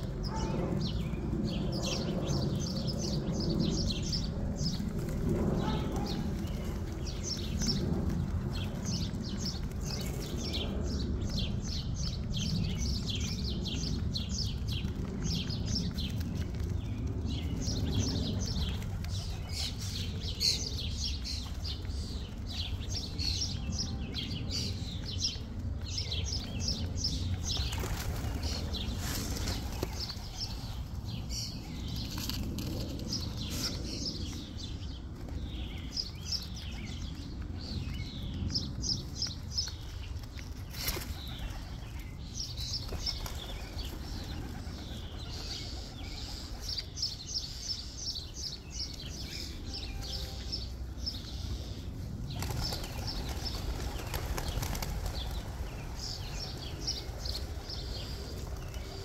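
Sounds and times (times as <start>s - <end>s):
steady low rumble: 0.0s - 59.0s
small birds chirping: 5.6s - 59.0s
pigeon wing flaps: 27.3s - 30.9s, 52.3s - 59.0s.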